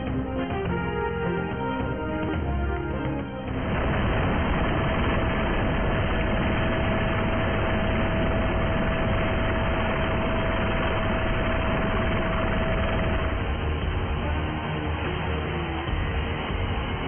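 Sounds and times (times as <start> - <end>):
constant whine: 0.0 - 17.0
helicopter engine and rotor: 0.0 - 17.0.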